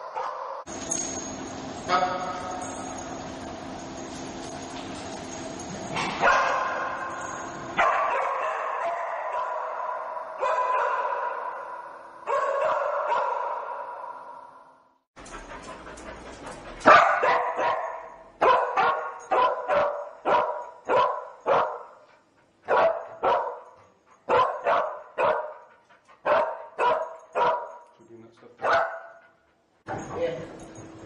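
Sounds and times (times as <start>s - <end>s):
dog barking: 0.0s - 0.7s, 6.0s - 7.1s, 7.8s - 14.6s, 16.8s - 22.0s, 22.7s - 25.6s, 26.2s - 27.8s, 28.6s - 29.2s.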